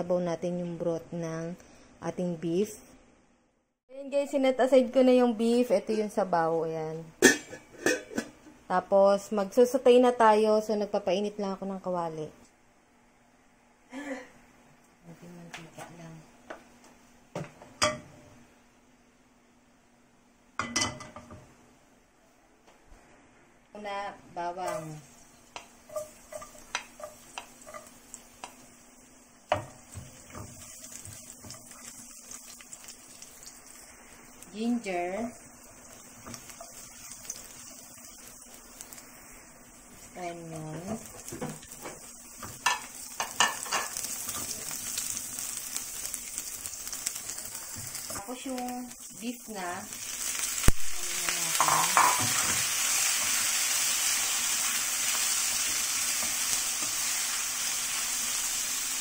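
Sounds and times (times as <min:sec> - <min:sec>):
faint background hiss: 0:00.0 - 0:59.0
food sizzling in hot oil: 0:24.6 - 0:59.0.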